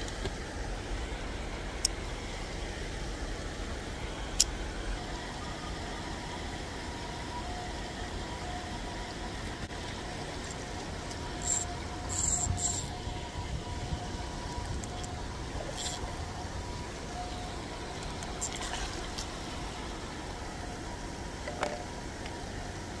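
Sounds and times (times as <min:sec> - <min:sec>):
road traffic rumble: 0:00.0 - 0:23.0
short hissing bursts: 0:11.4 - 0:13.0.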